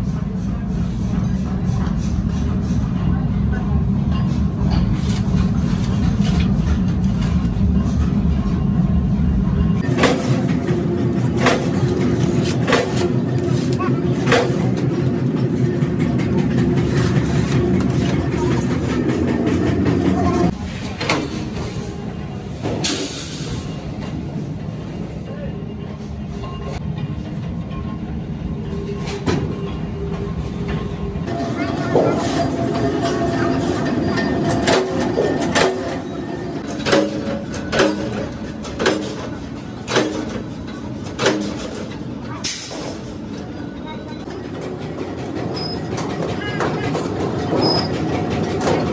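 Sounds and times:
machinery rumbling: 0.0 - 48.9
metal shear clanking: 31.3 - 42.0.

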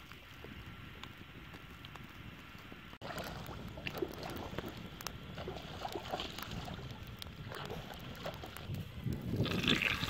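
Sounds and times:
wood fire crackling and popping: 0.0 - 10.0.

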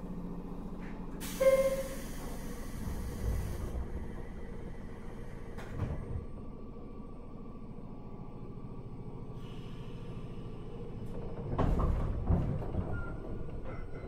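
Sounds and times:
standing train humming: 0.0 - 11.4
train doors hissing air: 1.2 - 6.1
sliding doors thumping: 11.2 - 13.6.

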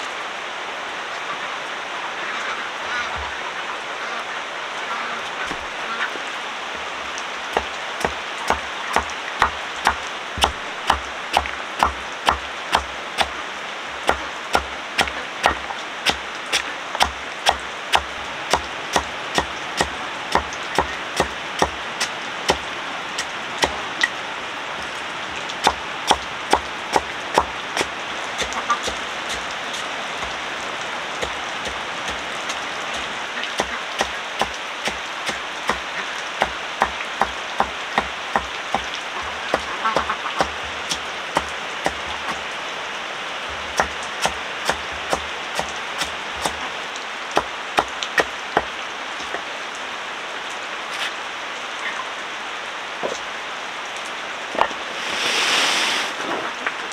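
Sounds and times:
steady hiss: 0.0 - 56.9
chopping strikes with thuds: 7.6 - 13.3, 43.8 - 46.6.

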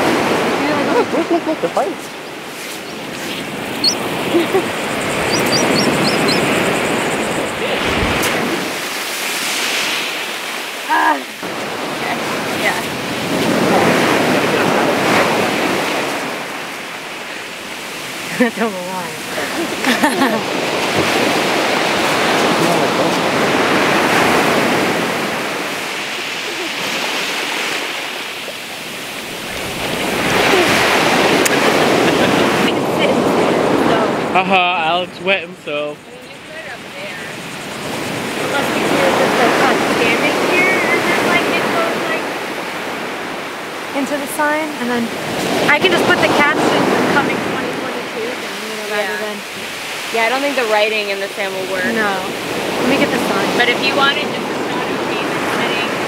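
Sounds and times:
wind on microphone: 0.0 - 18.3, 19.2 - 35.2, 35.9 - 44.1
waves breaking on beach: 0.0 - 56.0.

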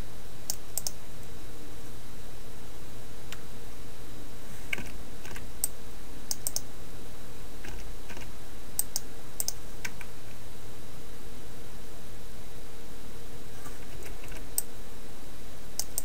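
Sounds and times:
steady hiss and low hum: 0.0 - 16.0
keyboard and mouse clicks: 0.5 - 1.0, 6.3 - 6.6, 7.6 - 10.1, 15.8 - 16.0.

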